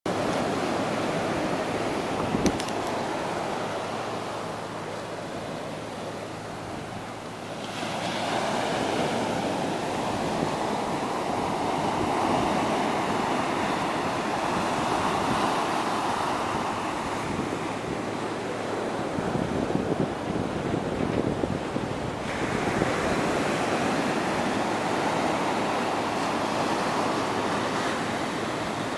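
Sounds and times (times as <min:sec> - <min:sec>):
wind buffeting microphone: 0:00.1 - 0:03.6, 0:08.5 - 0:28.0
surf breaking on a beach: 0:00.1 - 0:28.9.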